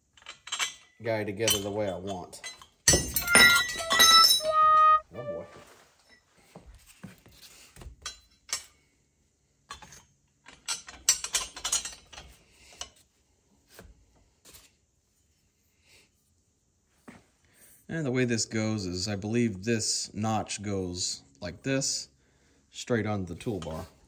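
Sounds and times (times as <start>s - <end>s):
metal brackets and bolts clinking: 0.0s - 4.8s, 9.7s - 12.4s
metal clatter: 0.1s - 4.5s
ringing metallic clink: 2.9s - 4.6s.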